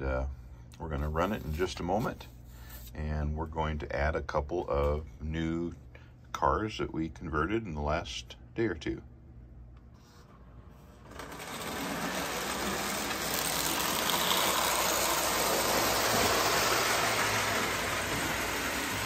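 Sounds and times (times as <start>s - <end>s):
toy train rolling on track: 11.0s - 19.0s.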